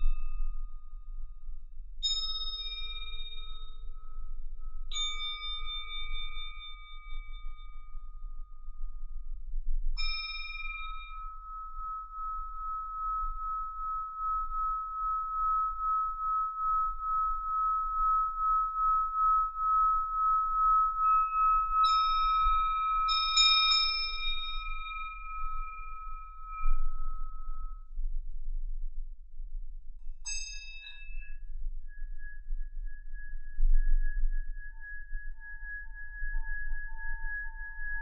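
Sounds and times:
singing bowl ringing tone: 0:00.0 - 0:09.4, 0:10.0 - 0:28.5, 0:30.2 - 0:38.0
bright high bowl strikes: 0:10.0 - 0:27.4.

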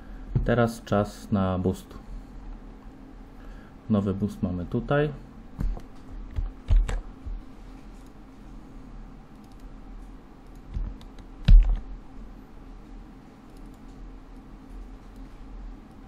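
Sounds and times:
low steady hum: 0:00.0 - 0:16.0
keyboard keystrokes: 0:05.7 - 0:07.0, 0:10.4 - 0:11.8.

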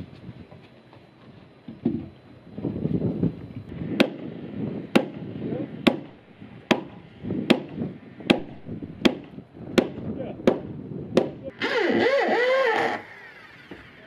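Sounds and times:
mallet striking timber post: 0:11.2 - 0:11.4.

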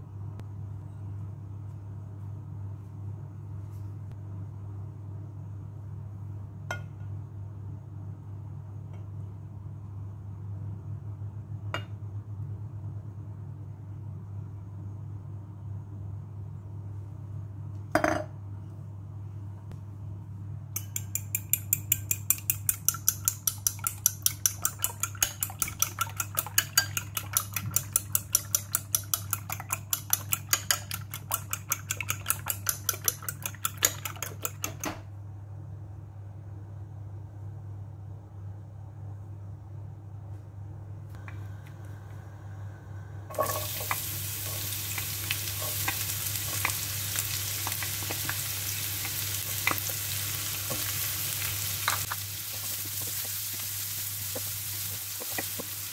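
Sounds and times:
steady low hum: 0:00.0 - 0:55.9
glassware clinking: 0:20.8 - 0:34.9
fork beating eggs in a bowl: 0:20.8 - 0:35.0, 0:43.3 - 0:53.6.

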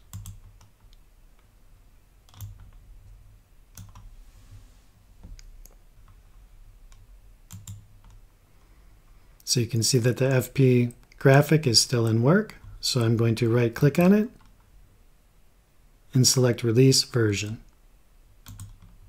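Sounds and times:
faint low hum: 0:00.0 - 0:19.0
computer mouse clicks: 0:00.1 - 0:01.5, 0:02.2 - 0:02.8, 0:03.7 - 0:04.1, 0:05.2 - 0:08.2, 0:18.4 - 0:19.0.

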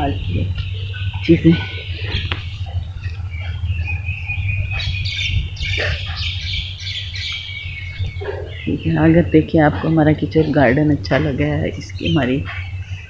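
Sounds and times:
birds chirping and calling: 0:00.0 - 0:13.0
low hum: 0:00.0 - 0:13.0.

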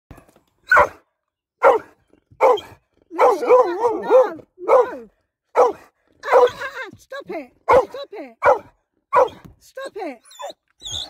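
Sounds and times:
dog barking: 0:00.7 - 0:01.0, 0:01.6 - 0:06.6, 0:07.7 - 0:09.4
dog yowling: 0:02.5 - 0:05.0.

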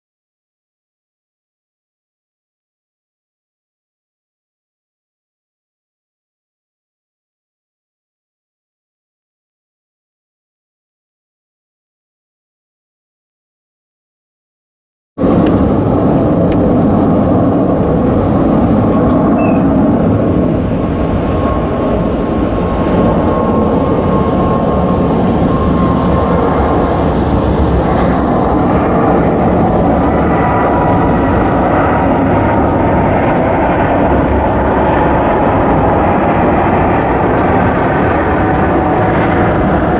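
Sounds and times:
jet engines roaring overhead: 0:15.2 - 0:39.9.

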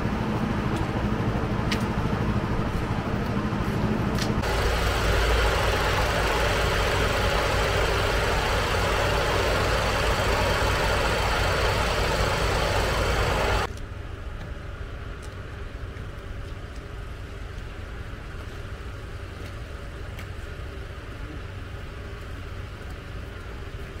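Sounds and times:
diesel engine idling: 0:00.0 - 0:13.7
low hum of idling vehicles: 0:00.0 - 0:24.0.

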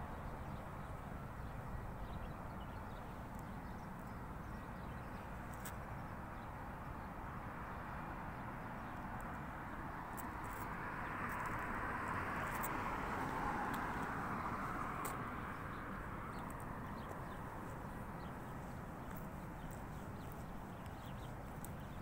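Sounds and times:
outdoor background rush: 0:00.0 - 0:22.0.

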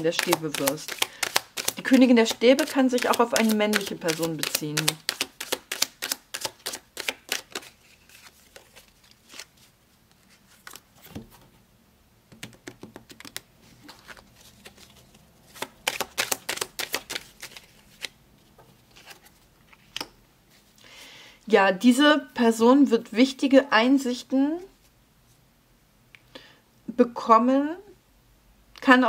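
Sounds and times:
cards being shuffled: 0:00.0 - 0:11.5, 0:12.3 - 0:20.7.

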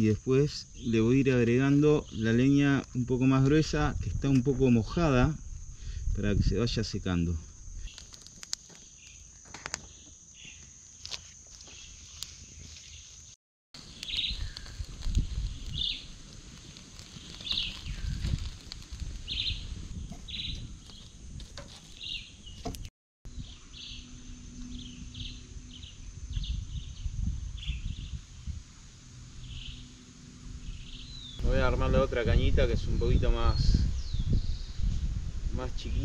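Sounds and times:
wind rumble on microphone: 0:02.0 - 0:08.0, 0:13.8 - 0:36.0
birds chirping: 0:11.6 - 0:28.6, 0:29.3 - 0:34.9
high-pitched drone: 0:23.6 - 0:26.9.

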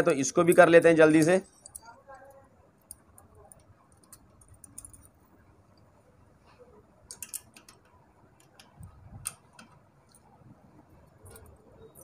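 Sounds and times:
metallic tool ticks and clicks: 0:07.1 - 0:10.3.

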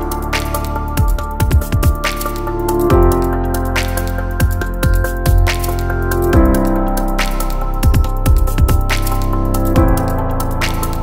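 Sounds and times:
synth chords: 0:00.0 - 0:11.0
deep kick drums: 0:01.0 - 0:02.2, 0:04.4 - 0:05.6, 0:07.8 - 0:09.0.

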